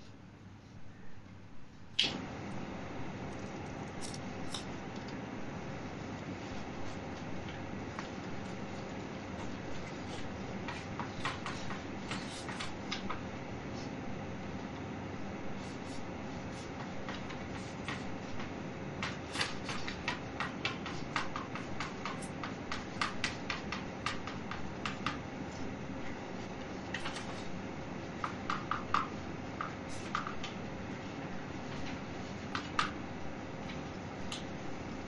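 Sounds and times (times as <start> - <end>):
faint hum: 0.0 - 35.0
chalk tapping and scratching: 6.4 - 13.2, 15.5 - 25.7, 28.2 - 30.6.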